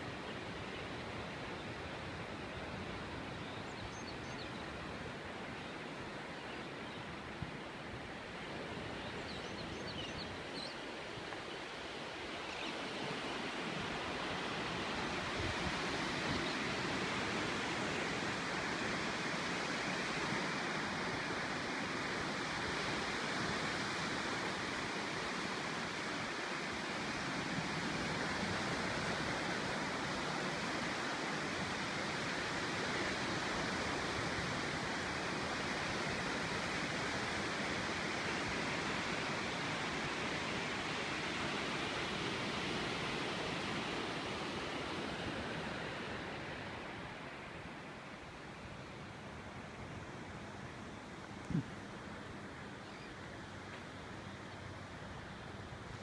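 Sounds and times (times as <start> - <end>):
ocean surf breaking: 24.0 - 52.2.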